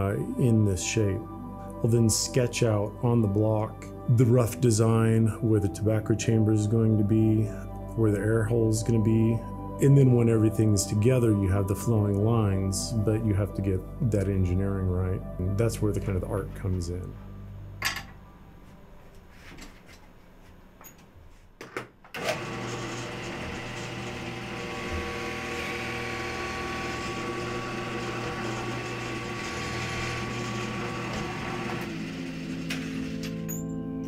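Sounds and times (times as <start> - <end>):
drill press motor running: 22.2 - 33.5.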